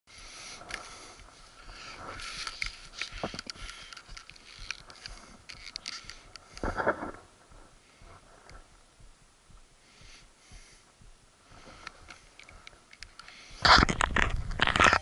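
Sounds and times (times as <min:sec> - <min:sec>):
camera handling noise: 0:02.0 - 0:07.2, 0:11.8 - 0:15.0.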